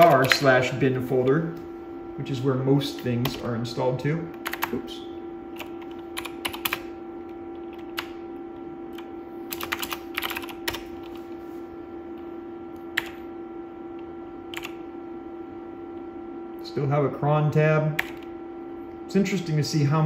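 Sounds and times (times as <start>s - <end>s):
steady hum: 0.0s - 20.0s
keyboard typing: 4.4s - 4.8s, 5.5s - 6.9s, 7.5s - 8.2s, 8.9s - 11.2s, 12.9s - 13.2s, 14.5s - 14.8s.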